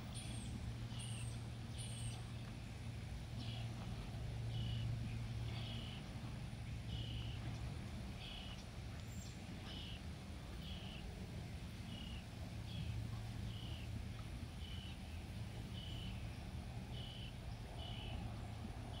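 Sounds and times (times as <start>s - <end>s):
low steady hum: 0.0s - 19.0s
bird calling: 3.4s - 6.2s.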